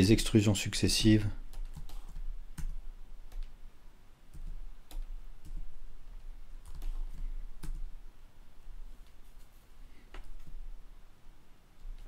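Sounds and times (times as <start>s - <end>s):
low steady hum: 0.0s - 12.0s
keyboard and mouse clicking: 1.5s - 3.6s, 4.3s - 5.7s, 6.6s - 7.8s.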